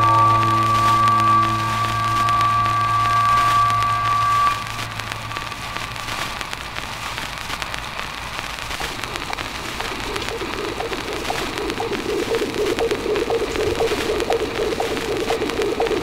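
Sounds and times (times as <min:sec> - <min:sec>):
held musical tones: 0:00.0 - 0:06.8
crackling hiss with clicks: 0:00.0 - 0:16.0.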